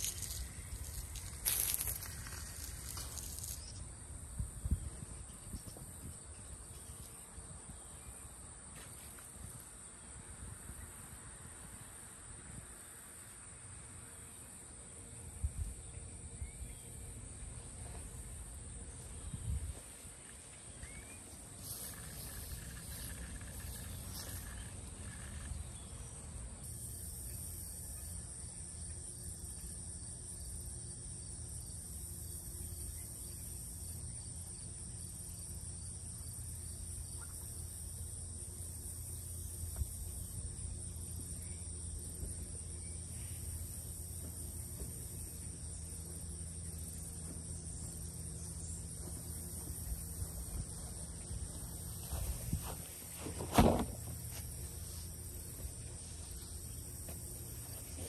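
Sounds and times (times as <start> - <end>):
insects droning: 0.0 - 58.0
short thumps: 52.0 - 54.6.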